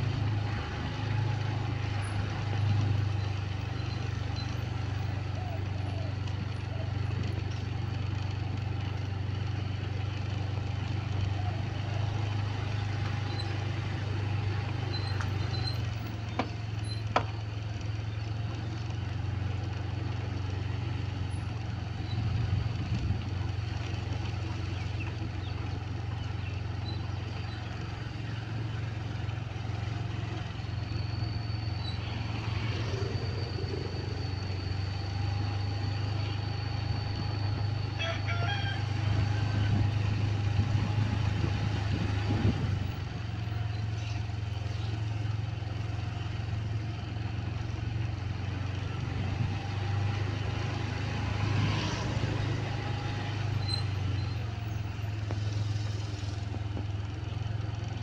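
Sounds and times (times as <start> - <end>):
small motorcycle engine running: 0.0 - 58.0.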